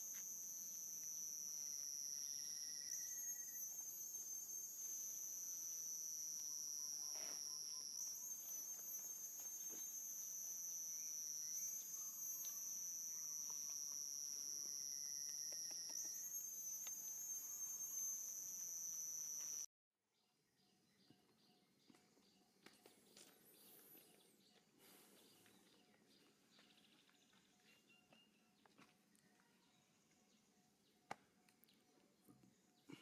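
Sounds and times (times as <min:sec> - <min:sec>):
high-pitched insect chorus: 0:00.0 - 0:19.7.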